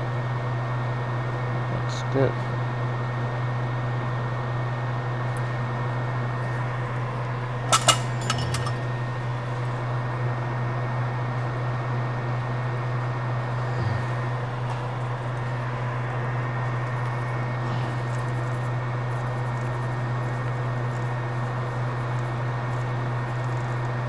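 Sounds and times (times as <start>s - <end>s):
low equipment hum: 1.2s - 24.0s.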